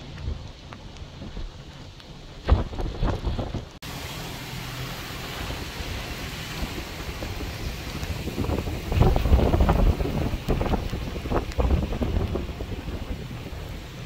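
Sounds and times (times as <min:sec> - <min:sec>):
wind buffeting microphone: 0:00.0 - 0:03.8, 0:05.0 - 0:14.0.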